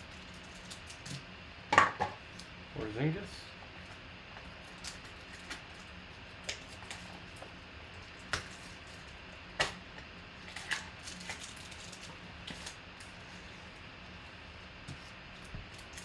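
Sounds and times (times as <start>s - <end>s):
foil pack crinkling: 0.1s - 1.2s, 10.4s - 12.8s.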